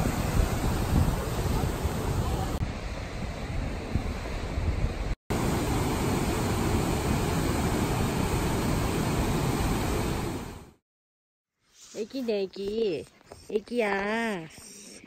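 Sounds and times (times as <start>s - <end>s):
wind on microphone: 0.0s - 10.6s.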